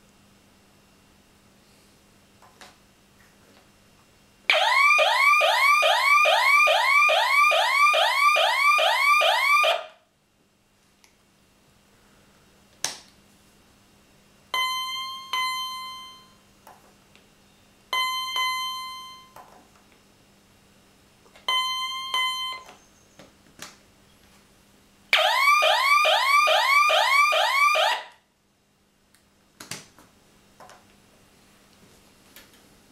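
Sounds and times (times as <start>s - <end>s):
alarm siren wailing: 4.5s - 10.0s, 25.2s - 28.2s
double beeps: 14.6s - 16.4s, 17.9s - 19.4s, 21.5s - 22.7s.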